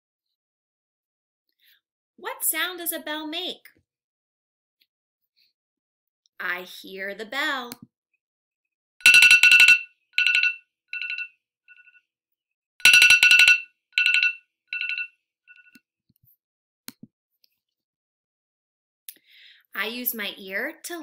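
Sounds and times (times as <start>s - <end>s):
electric school bell ringing: 9.0s - 11.8s, 12.8s - 15.1s.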